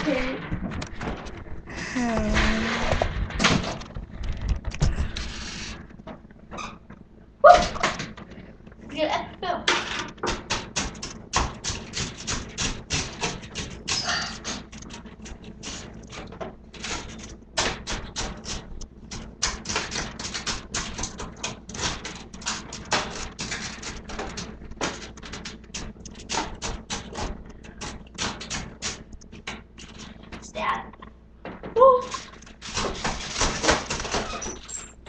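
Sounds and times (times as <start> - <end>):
low hum: 0.0 - 10.2
rapid clicks and knocks: 0.4 - 1.7, 2.3 - 8.9, 9.7 - 35.0.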